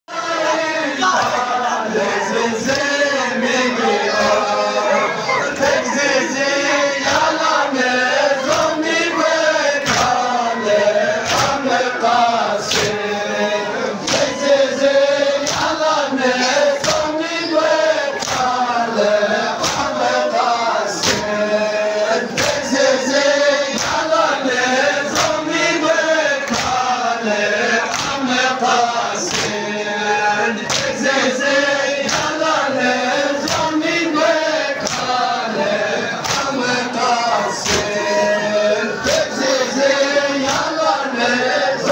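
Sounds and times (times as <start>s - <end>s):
men chanting together: 0.1s - 41.9s
palms slapping chest: 11.2s - 11.6s, 18.2s - 18.5s, 19.6s - 20.0s, 21.0s - 21.3s, 25.1s - 25.4s, 26.4s - 26.8s, 27.9s - 28.2s, 34.8s - 35.1s, 36.2s - 36.6s, 37.6s - 37.9s.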